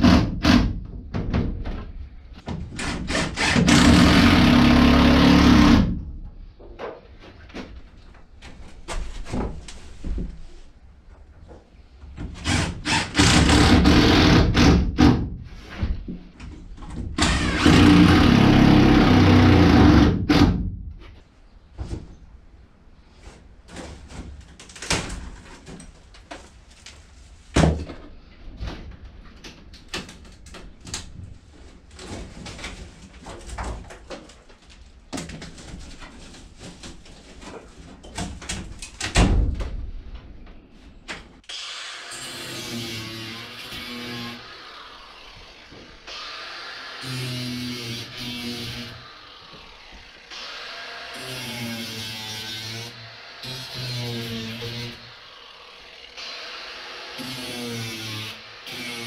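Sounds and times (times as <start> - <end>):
power drill drilling into wood: 2.8 - 5.9, 12.5 - 14.6, 17.2 - 20.4, 41.5 - 59.0.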